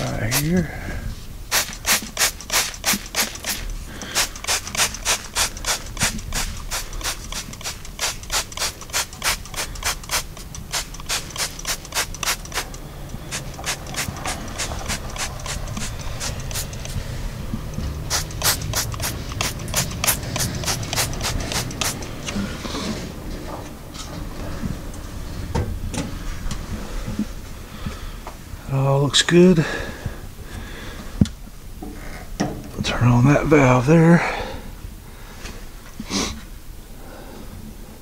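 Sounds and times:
spray bottle squirting: 0.0 - 0.5, 1.5 - 22.4.

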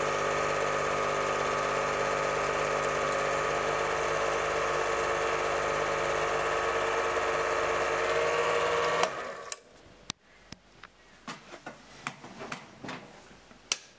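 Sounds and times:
film projector clattering: 0.0 - 9.6.

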